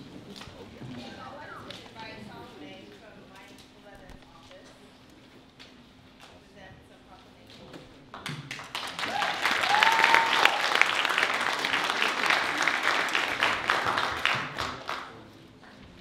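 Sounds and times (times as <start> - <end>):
audience applauding: 8.5 - 15.2.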